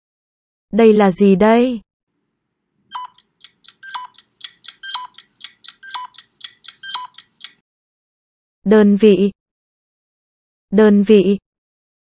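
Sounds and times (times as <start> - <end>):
electronic timer ticking: 2.9 - 7.6
pitched timer beep: 2.9 - 7.6.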